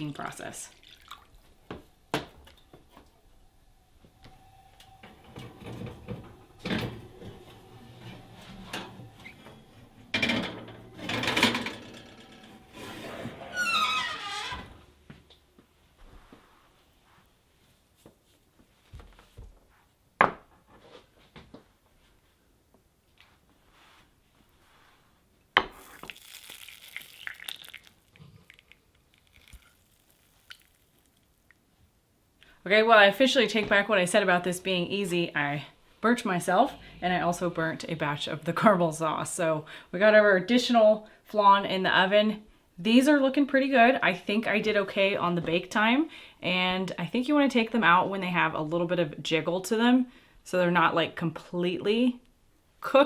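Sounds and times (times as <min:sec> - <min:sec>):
glass dishes scraping on oven racks: 0:05.4 - 0:14.2
hot caramel hissing and crackling: 0:25.7 - 0:31.4.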